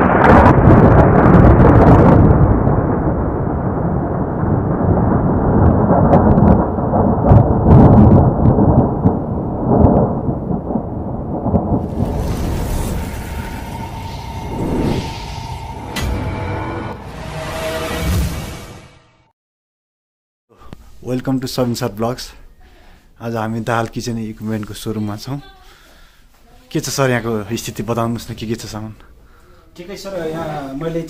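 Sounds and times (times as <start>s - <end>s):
thunder-like rumbling: 0.0s - 18.4s
steady high tone: 12.2s - 18.9s.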